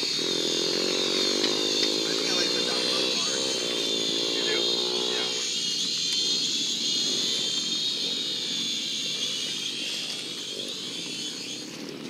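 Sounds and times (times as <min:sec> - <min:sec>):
dirt bike engine running: 0:00.0 - 0:12.0.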